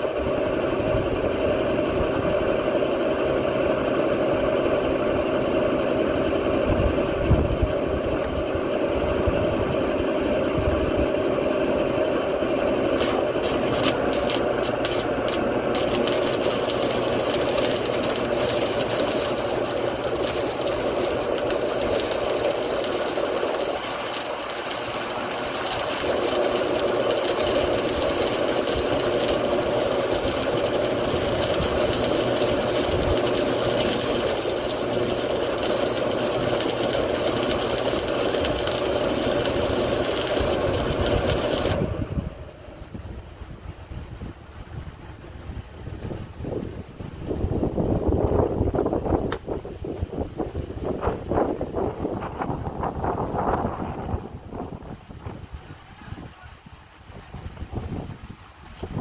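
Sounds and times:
welder humming: 0.0 - 42.9
welding arc crackling and hissing: 11.9 - 42.2.

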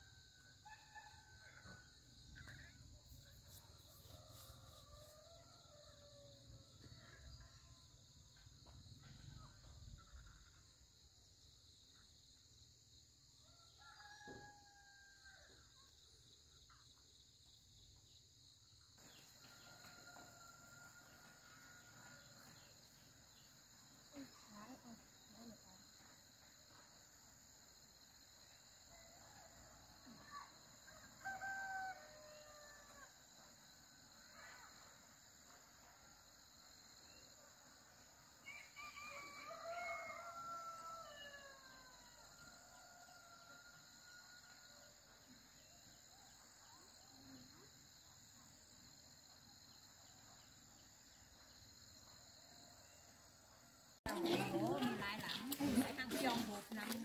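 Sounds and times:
faint rooster crowing: 0.0 - 7.6, 13.4 - 15.8, 19.0 - 23.4, 28.6 - 33.5, 36.8 - 48.0
insects droning: 0.0 - 57.0.

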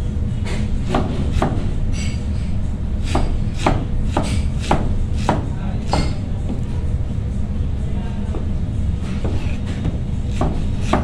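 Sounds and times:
knife chopping cabbage on board: 0.9 - 1.7, 3.0 - 6.2, 9.2 - 11.0.

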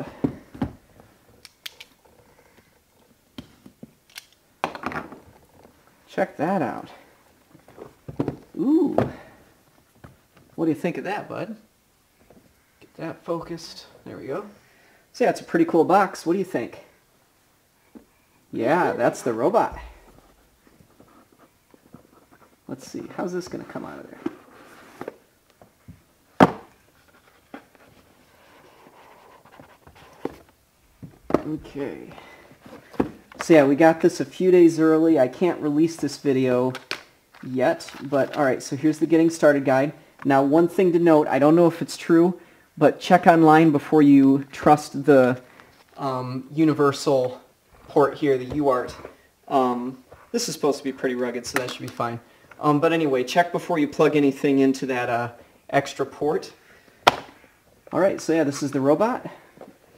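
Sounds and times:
cardboard rustling: 26.4 - 34.2.

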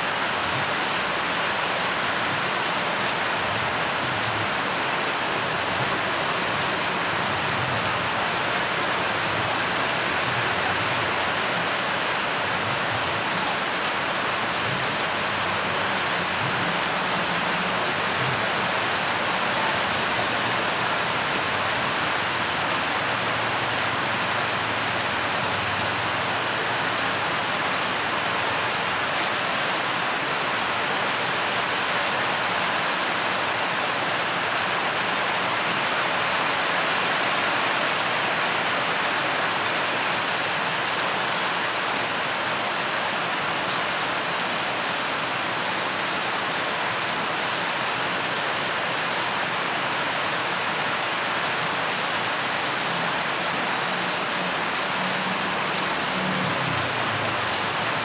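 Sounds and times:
heavy rain on floodwater: 0.0 - 58.0.

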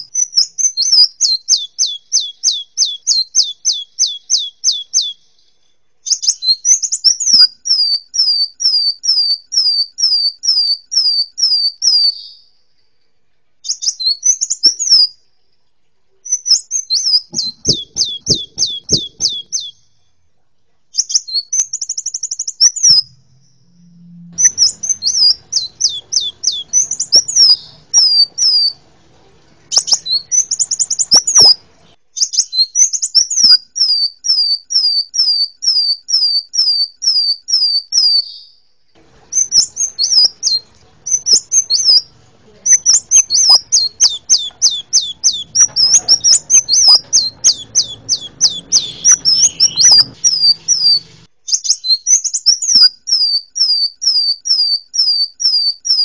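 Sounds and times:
songbird singing: 0.0 - 13.0, 13.6 - 20.2, 21.0 - 56.0.

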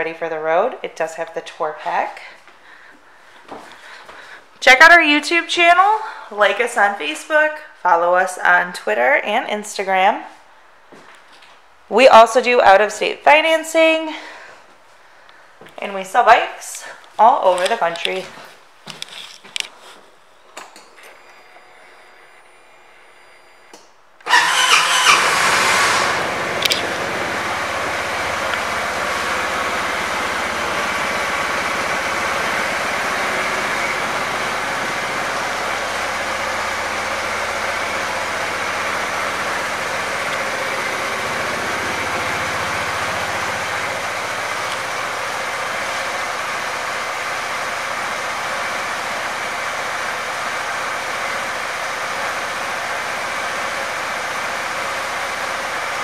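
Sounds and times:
scooter engine idling: 24.2 - 56.0.

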